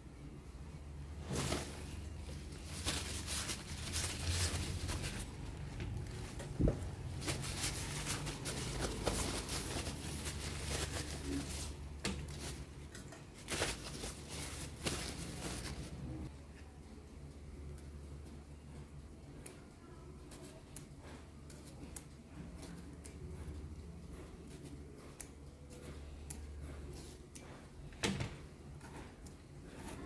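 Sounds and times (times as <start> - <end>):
paper towel rustling: 1.1 - 16.3.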